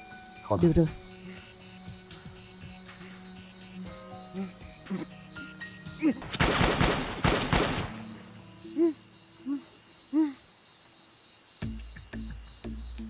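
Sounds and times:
rapid bangs: 0:06.2 - 0:08.3.

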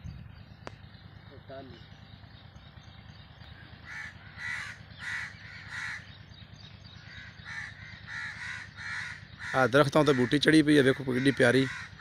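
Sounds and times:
crow cawing: 0:03.6 - 0:06.2, 0:07.0 - 0:12.0.

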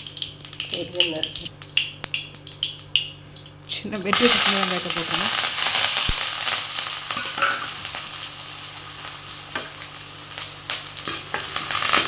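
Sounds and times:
shallots sizzling in hot oil: 0:00.0 - 0:12.0.

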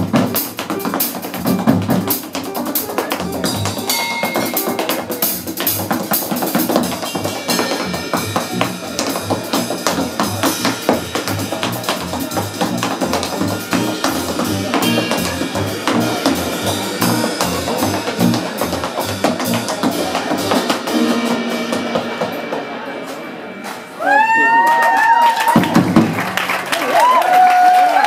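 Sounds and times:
tap shoes on wooden stage: 0:00.0 - 0:20.9
jazz trio playing: 0:00.0 - 0:27.0.

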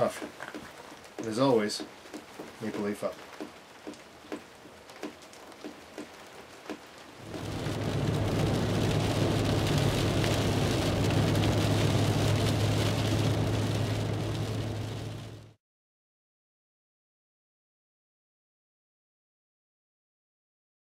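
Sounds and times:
car driving on wet road: 0:00.0 - 0:15.6
rain on car windshield: 0:00.0 - 0:15.6.

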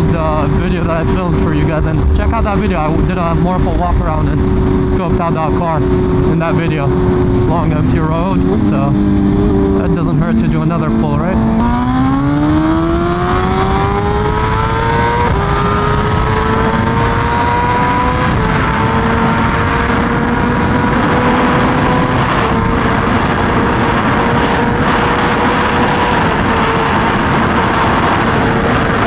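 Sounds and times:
motorcycle engine revving: 0:00.0 - 0:29.0
wind rushing: 0:00.0 - 0:29.0.

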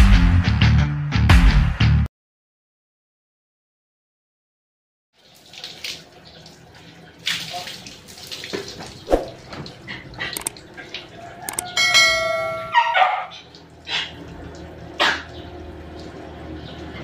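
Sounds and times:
bright bell-like chime: 0:11.8 - 0:12.8
dog barking: 0:12.7 - 0:13.4.

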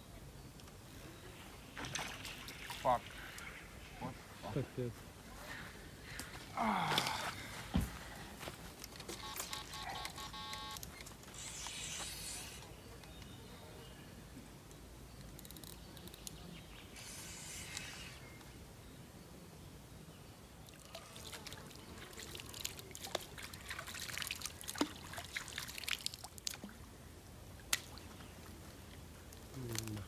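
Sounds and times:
sharp drips and splashes: 0:01.8 - 0:03.6, 0:20.6 - 0:26.9, 0:27.6 - 0:30.0
water trickling and dripping: 0:20.6 - 0:26.9.

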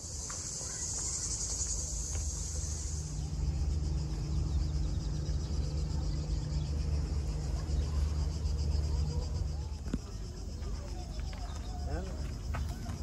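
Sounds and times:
cicadas buzzing: 0:00.0 - 0:13.0
low rumble: 0:01.3 - 0:10.5.

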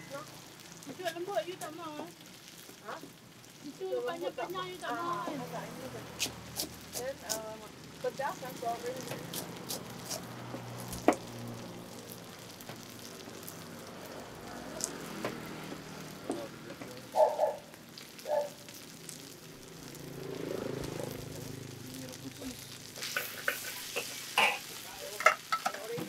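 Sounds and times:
food frying sizzle: 0:00.0 - 0:26.0
cooking utensil clicks and knocks: 0:23.1 - 0:26.0.

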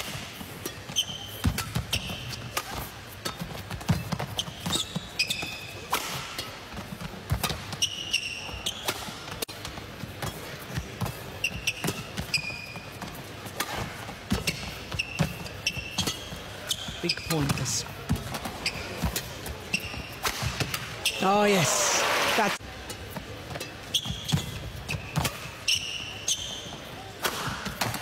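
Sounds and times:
shoe squeaks on court: 0:00.6 - 0:06.5, 0:07.4 - 0:09.4, 0:10.2 - 0:17.7, 0:18.3 - 0:21.3, 0:23.6 - 0:27.1
racket striking shuttlecock: 0:27.2 - 0:28.0.

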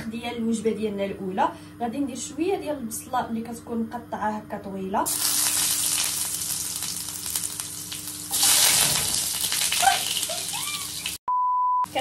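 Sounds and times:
onion sizzling in hot oil: 0:05.1 - 0:11.2.

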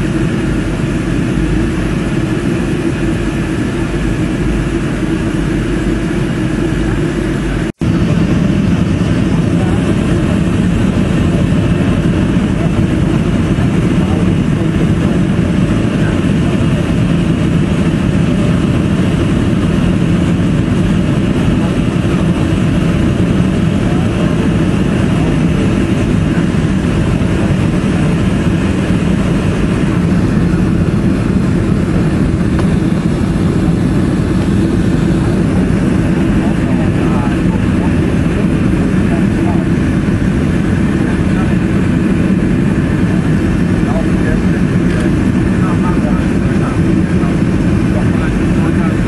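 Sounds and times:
jet engine and airflow roar: 0:00.0 - 0:49.0.

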